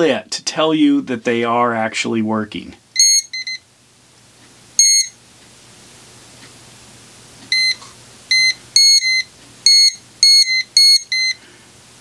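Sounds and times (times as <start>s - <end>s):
voltage tester high-pitched beeps: 3.0s - 3.6s, 4.8s - 5.2s, 7.5s - 11.4s.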